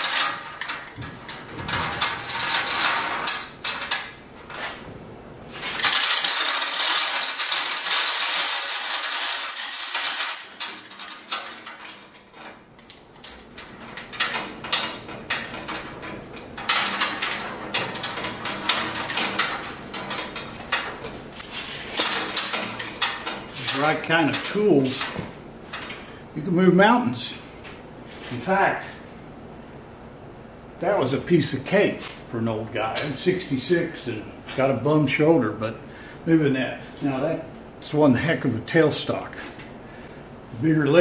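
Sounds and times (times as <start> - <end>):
chain hoist chain clinking and rattling: 0.0 - 4.7, 5.6 - 21.0, 22.0 - 25.9.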